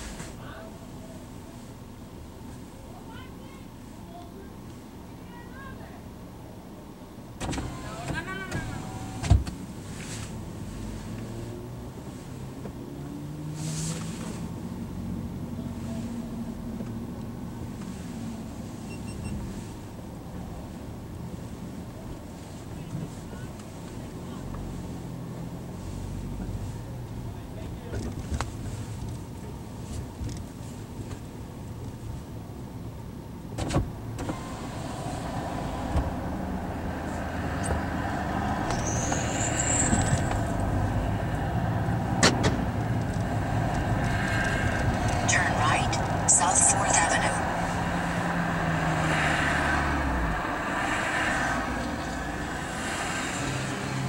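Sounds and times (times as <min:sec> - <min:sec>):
car cabin road noise: 0:00.0 - 0:54.0
engine and tyres rumble: 0:00.0 - 0:54.0
faint beeps: 0:45.1 - 0:47.6.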